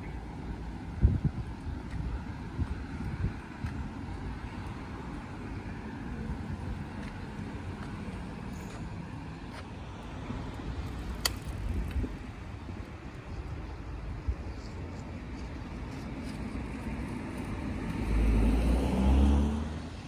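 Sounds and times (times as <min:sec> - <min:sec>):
low rumble of road traffic: 0:00.0 - 0:20.0.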